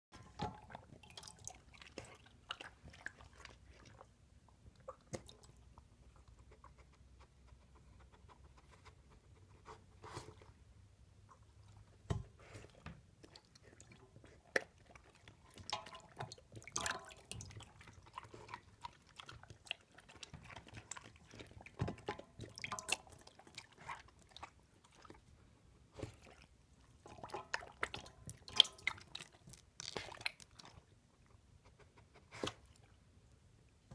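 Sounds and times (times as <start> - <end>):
dog crunching and chewing: 16.9 - 24.4.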